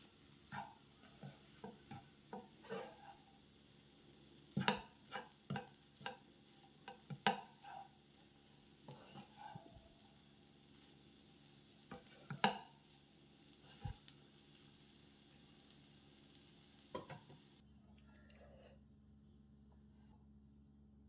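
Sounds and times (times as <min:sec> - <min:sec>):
spatula scraping a pan: 0:00.3 - 0:14.8.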